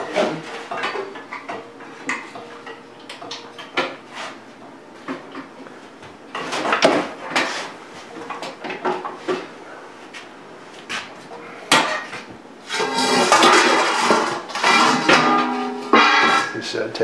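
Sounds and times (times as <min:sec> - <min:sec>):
metal oven doors clanking: 0:11.7 - 0:16.8.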